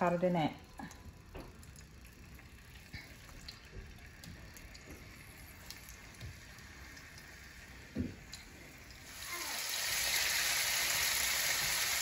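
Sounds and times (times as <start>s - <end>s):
chicken sizzling in oil: 4.0s - 12.0s.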